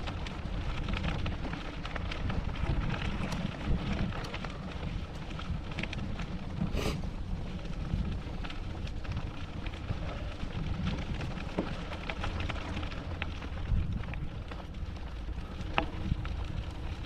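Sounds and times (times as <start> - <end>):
bicycle tyres rolling over gravel: 0.0 - 17.0
wind on microphone: 2.0 - 8.4, 13.6 - 14.4.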